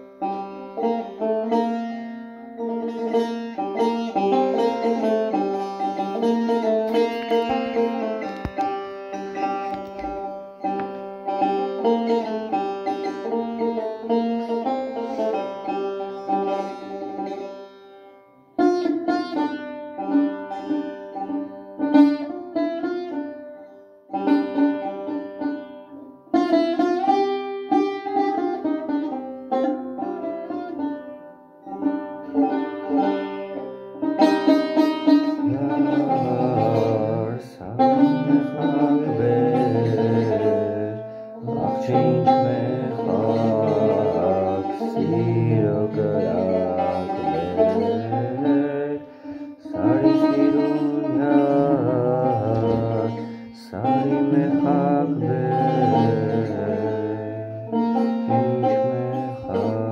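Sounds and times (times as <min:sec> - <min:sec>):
plucked lute melody: 0:00.0 - 0:59.9
man singing: 0:35.3 - 0:59.9.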